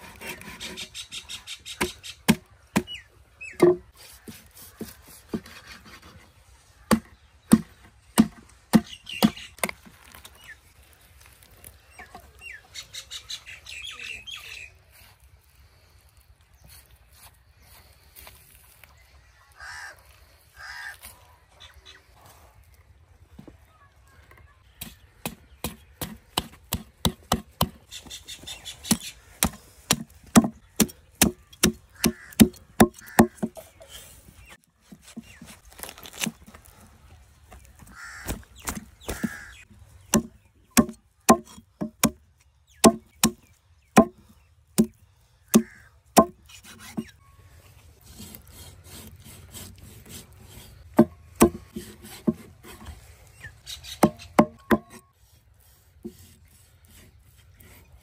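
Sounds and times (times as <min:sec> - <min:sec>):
cleaver chopping on wooden block: 0:28.9 - 0:33.6, 0:40.1 - 0:42.2, 0:42.8 - 0:44.2, 0:44.8 - 0:47.1, 0:51.0 - 0:52.4, 0:54.0 - 0:55.0.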